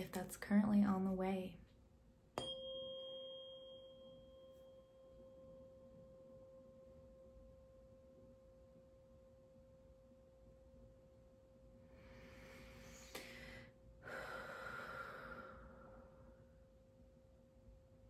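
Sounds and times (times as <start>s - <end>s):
faint high overtone: 2.4s - 9.1s
tuning fork ringing: 2.4s - 11.9s.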